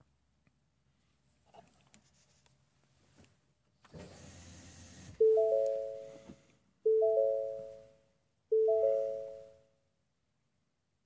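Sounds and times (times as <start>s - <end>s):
car warning chime: 5.2s - 6.2s, 6.9s - 9.6s.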